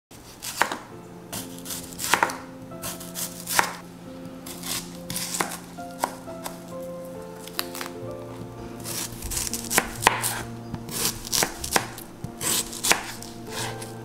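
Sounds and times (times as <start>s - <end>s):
knife chopping onion on board: 0.4s - 3.8s, 4.6s - 6.6s, 8.8s - 13.9s.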